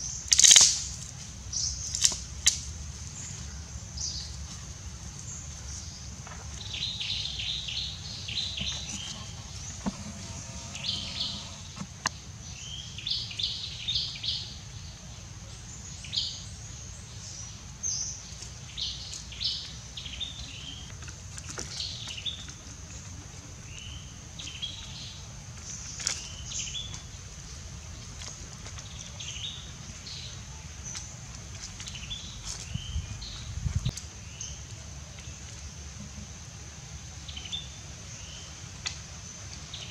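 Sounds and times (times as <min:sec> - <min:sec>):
birds chirping: 0:05.3 - 0:13.2
high-pitched hum: 0:08.8 - 0:11.9.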